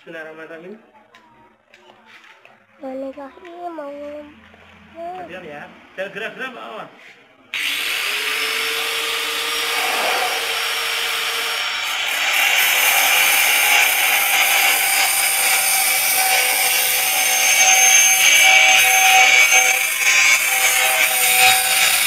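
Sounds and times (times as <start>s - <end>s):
angle grinder motor: 7.6s - 22.0s
grinder cutting metal: 7.6s - 22.0s.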